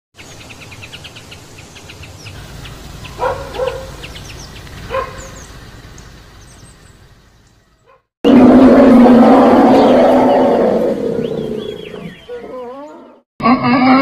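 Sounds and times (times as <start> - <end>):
birds chirping: 0.2 - 13.3
dog barking: 3.2 - 4.0, 4.9 - 5.4, 7.8 - 8.1.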